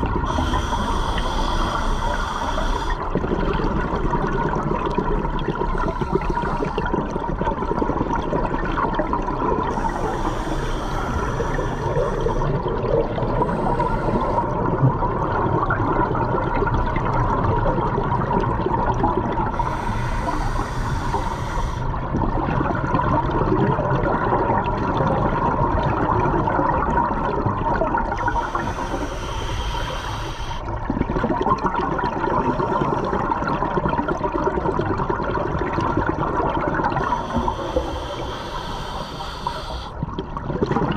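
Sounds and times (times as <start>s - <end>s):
diver breathing bubbles underwater: 0.0s - 40.9s
regulator hiss: 0.3s - 3.0s, 9.7s - 12.5s, 19.6s - 21.8s, 28.2s - 30.6s, 37.0s - 40.0s.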